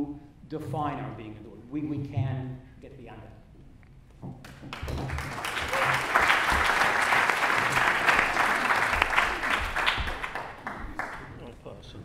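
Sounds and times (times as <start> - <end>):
audience applauding: 4.5 - 11.5.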